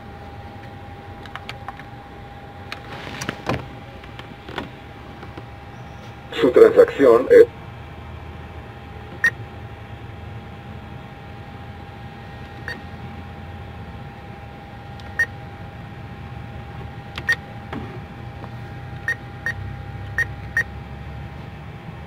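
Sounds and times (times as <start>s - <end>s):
keypad beeps: 17.2s - 17.4s, 19.0s - 20.7s.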